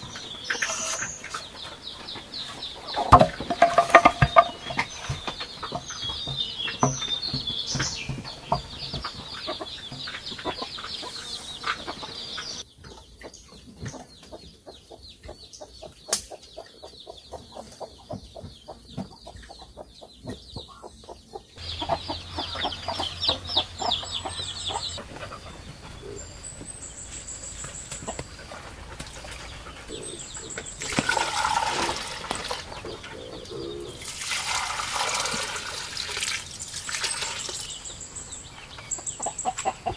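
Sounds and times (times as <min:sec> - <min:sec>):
birds calling: 0:00.0 - 0:39.9
chickens clucking: 0:00.0 - 0:39.9
water splashing into trough: 0:03.0 - 0:05.8, 0:30.8 - 0:32.8, 0:34.0 - 0:37.7.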